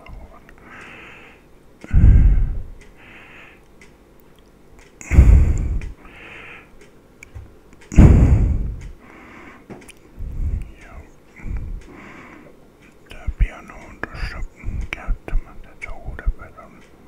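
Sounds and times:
faint hissing: 5.0 - 6.8.

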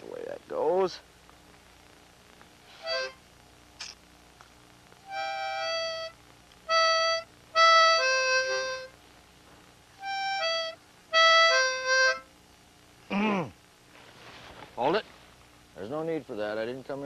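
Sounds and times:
harmonica notes and chords: 2.7 - 3.2, 5.0 - 9.0, 10.0 - 12.3.

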